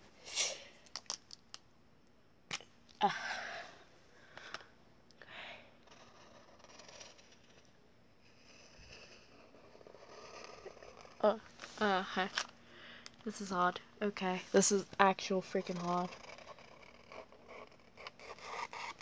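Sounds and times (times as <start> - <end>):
marker scratching on paper: 8.4 - 11.2, 15.4 - 19.0.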